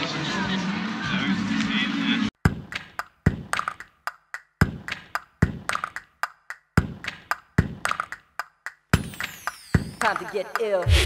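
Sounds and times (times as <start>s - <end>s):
hip-hop beat: 2.4s - 11.0s.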